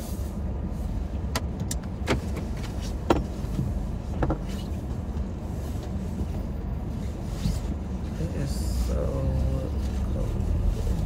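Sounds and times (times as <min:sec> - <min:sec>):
car idling rumble: 0:00.0 - 0:11.0
seatbelt clicks and knocks: 0:01.3 - 0:04.7.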